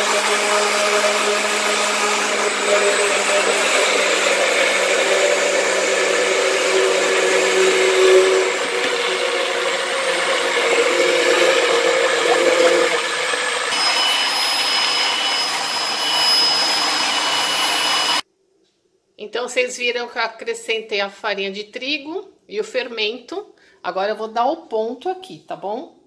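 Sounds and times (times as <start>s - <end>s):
electric blender running: 0.0s - 18.2s
hand mixer whining: 0.0s - 18.2s.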